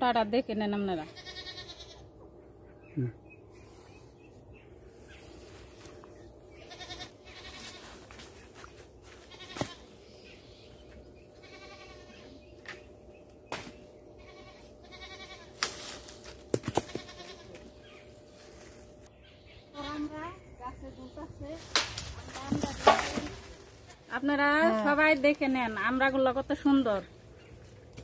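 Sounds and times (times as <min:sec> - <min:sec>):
goats bleating: 0:06.6 - 0:07.9, 0:09.3 - 0:09.9, 0:11.4 - 0:12.3, 0:14.2 - 0:15.5
branches knocking and cracking: 0:15.5 - 0:17.8, 0:21.5 - 0:24.0.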